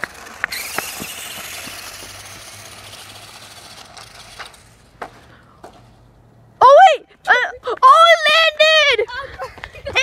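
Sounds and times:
toy truck motor whir: 0.0s - 4.9s
tyre noise on asphalt: 0.0s - 10.0s.

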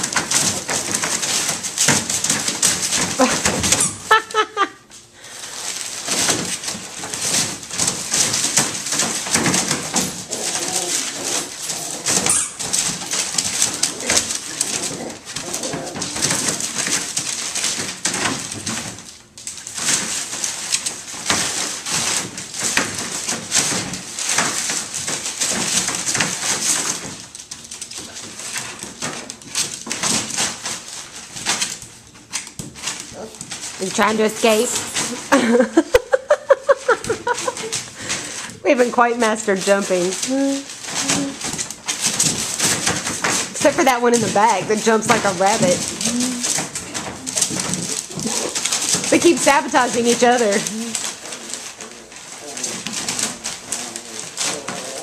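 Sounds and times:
newspaper rustling and crinkling: 0.0s - 55.0s
puppies growling: 8.1s - 18.0s, 39.6s - 55.0s.

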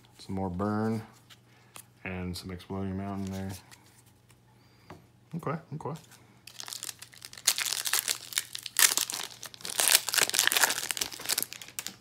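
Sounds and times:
foil wrapper tearing and crinkling: 6.5s - 12.0s.

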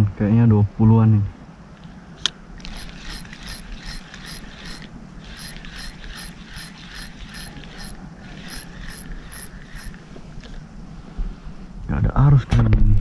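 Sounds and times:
fishing reel gears whirring and ticking: 2.6s - 10.0s.

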